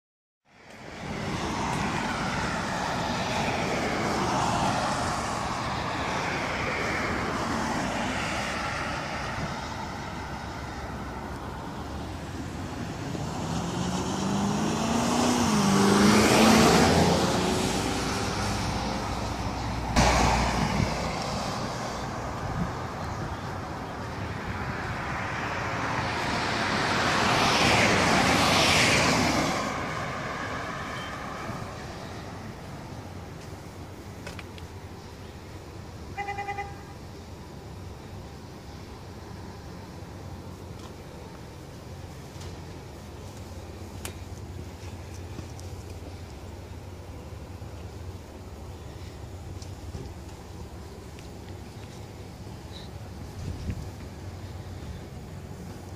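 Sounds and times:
road traffic noise: 0.4s - 55.9s
vehicle passing close: 0.8s - 22.9s, 24.3s - 33.2s.

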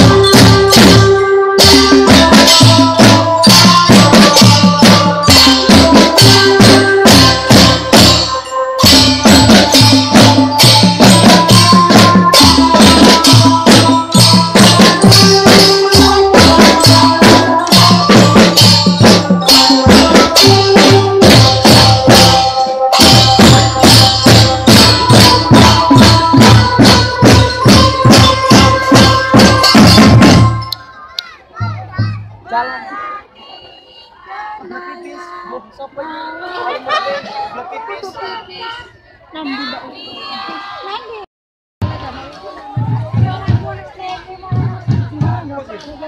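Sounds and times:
snare drums marching rhythm: 0.0s - 30.8s, 42.7s - 46.0s.

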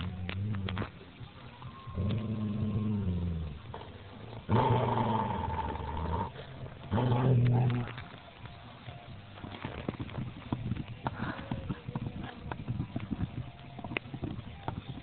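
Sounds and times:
dog growling low: 2.0s - 8.0s.

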